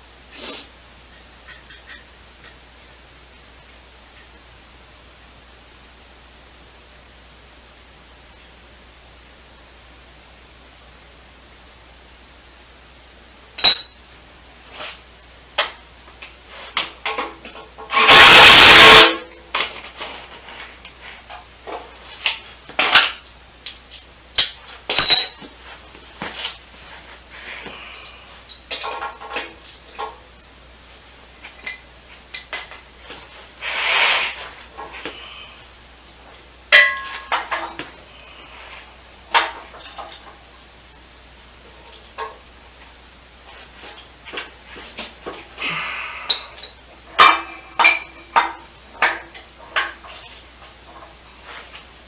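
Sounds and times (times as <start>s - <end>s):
tools clinking on metal: 13.6s - 14.0s, 23.9s - 25.5s, 31.5s - 32.9s, 36.3s - 37.8s, 46.3s - 50.4s.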